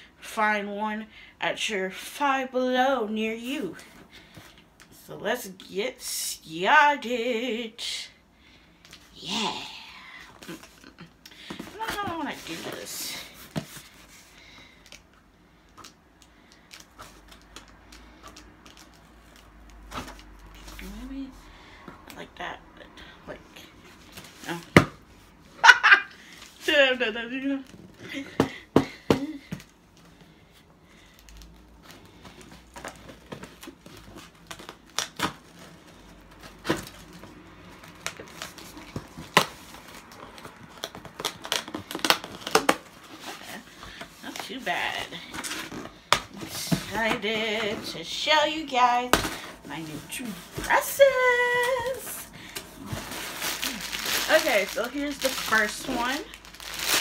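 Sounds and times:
cardboard and tape crinkling: 0:10.4 - 0:15.0, 0:15.7 - 0:21.3, 0:31.0 - 0:57.0.

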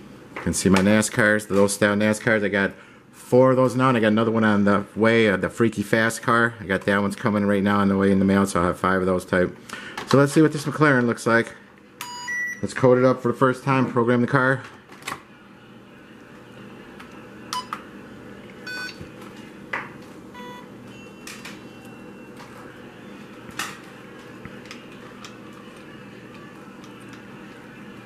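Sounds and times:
short electronic beeps: 0:18.7 - 0:19.0, 0:20.4 - 0:22.0.

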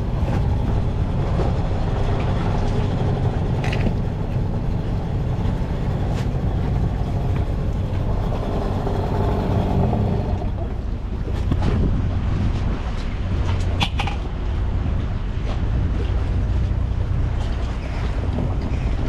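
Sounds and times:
outboard motor idling: 0:00.0 - 0:12.2.

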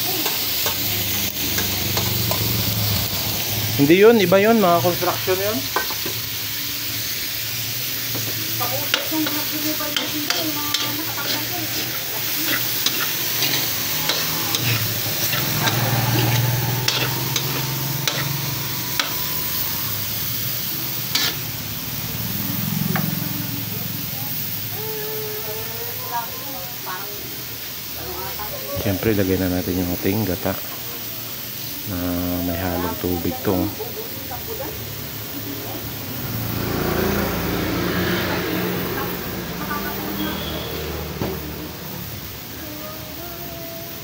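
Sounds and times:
food sizzling in pan: 0:00.0 - 0:44.0
spatula scraping and knocking pan: 0:05.7 - 0:06.2, 0:08.1 - 0:19.4.

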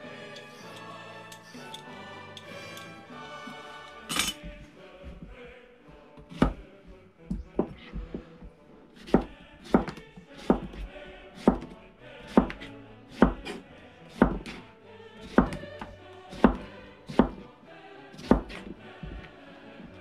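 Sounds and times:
music with choir-like voices: 0:00.0 - 0:20.0
knife chopping on cutting board: 0:06.3 - 0:06.6, 0:07.3 - 0:08.3, 0:09.0 - 0:14.6, 0:15.2 - 0:15.6, 0:16.3 - 0:17.4, 0:18.2 - 0:19.3.

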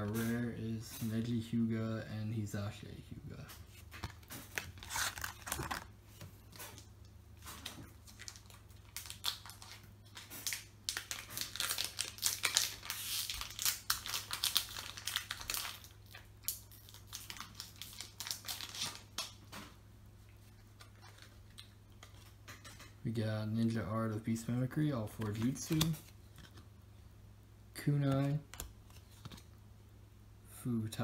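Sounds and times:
foil wrapper crinkling and tearing: 0:04.5 - 0:05.9, 0:08.0 - 0:19.4.

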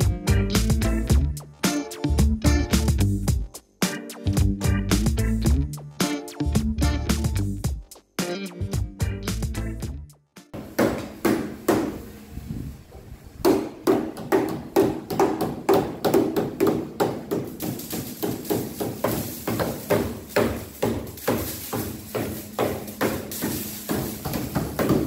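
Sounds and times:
hammers striking sheet steel: 0:10.6 - 0:12.1, 0:13.4 - 0:25.0.

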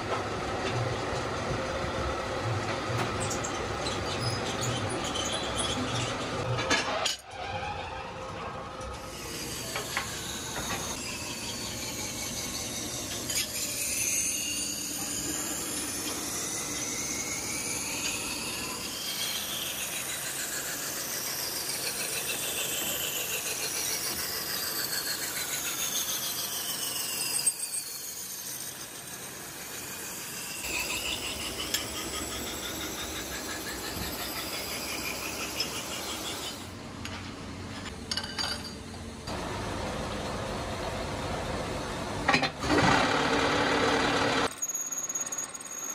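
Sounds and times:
metal machining squeal: 0:03.1 - 0:36.8, 0:44.4 - 0:45.9.

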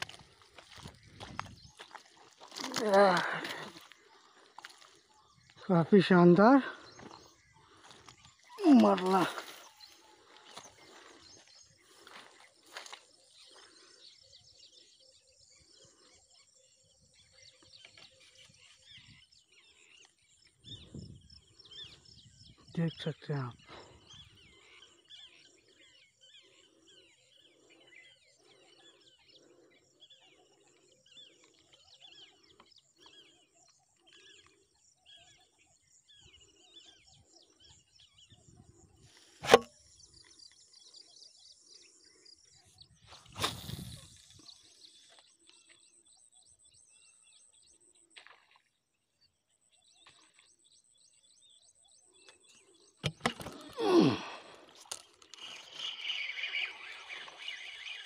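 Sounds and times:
faint chirping calls: 0:49.7 - 0:58.0.

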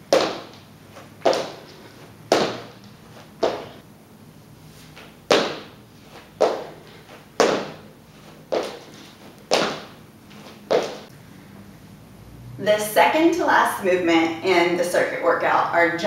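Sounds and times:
feet thudding on floor: 0:00.0 - 0:03.8, 0:04.9 - 0:11.1.

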